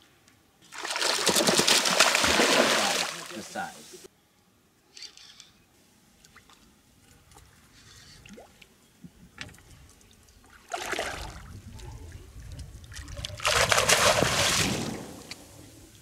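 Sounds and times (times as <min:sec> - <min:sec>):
fish splashing at surface: 0:00.7 - 0:03.3.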